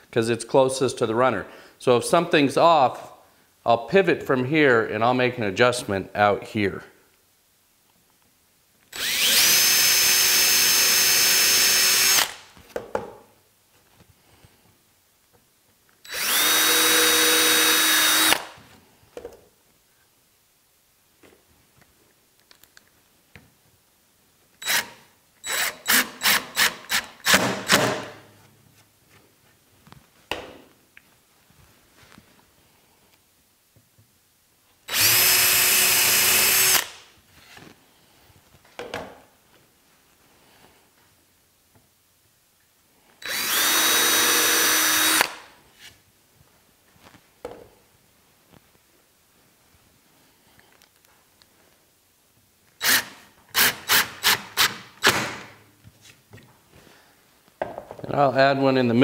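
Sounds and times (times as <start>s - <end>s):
cordless drill into plywood: 8.9s - 12.4s, 16.1s - 18.6s, 24.6s - 28.2s, 34.9s - 37.0s, 43.2s - 45.5s, 52.8s - 55.5s.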